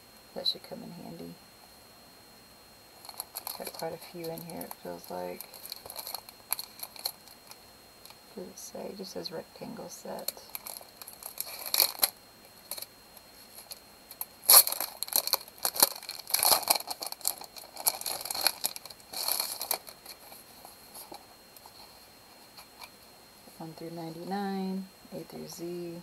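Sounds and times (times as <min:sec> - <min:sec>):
plastic bag crinkling: 0:03.0 - 0:07.6, 0:10.2 - 0:12.9, 0:13.5 - 0:21.9.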